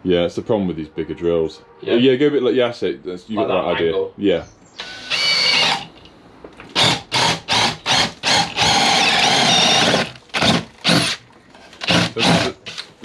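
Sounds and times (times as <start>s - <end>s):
cordless drill motor whining: 4.8s - 6.1s, 6.7s - 11.2s, 11.8s - 13.0s.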